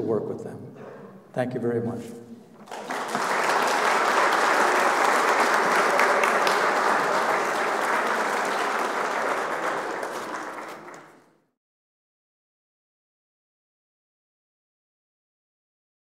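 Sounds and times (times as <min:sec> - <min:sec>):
audience applauding: 0:02.6 - 0:11.4.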